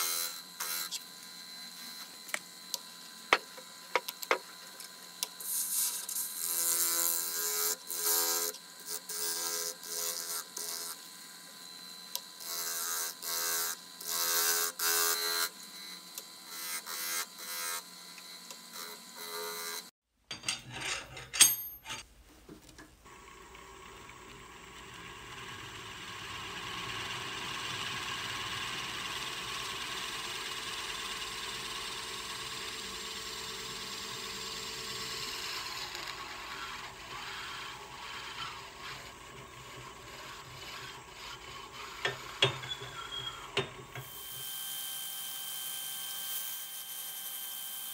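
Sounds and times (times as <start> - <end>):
lathe motor hum: 23.1 - 42.6
drill bit boring into wood: 24.8 - 47.9
gouge scraping spinning wood: 26.6 - 43.7.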